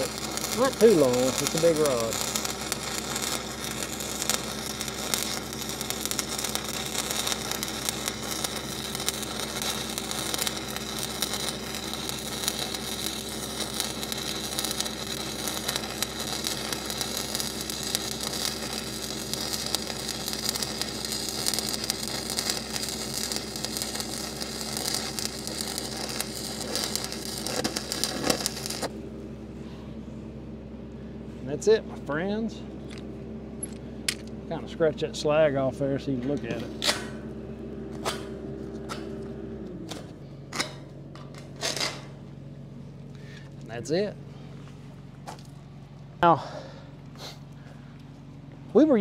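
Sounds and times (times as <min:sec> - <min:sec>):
welding arc crackling: 0:00.0 - 0:29.1.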